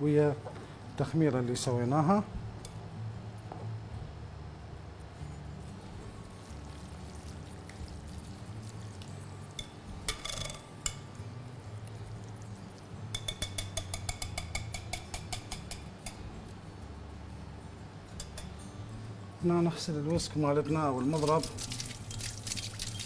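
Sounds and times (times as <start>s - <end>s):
steady low hum: 0.0s - 21.0s
metal whisk clinking against bowl: 13.1s - 16.2s, 18.2s - 18.5s.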